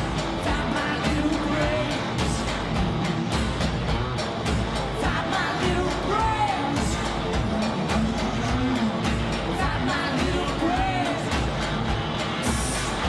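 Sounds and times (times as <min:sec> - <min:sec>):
electric guitar: 0:00.0 - 0:13.0
live rock music: 0:00.0 - 0:13.0
woman singing: 0:00.4 - 0:02.5, 0:05.0 - 0:11.4.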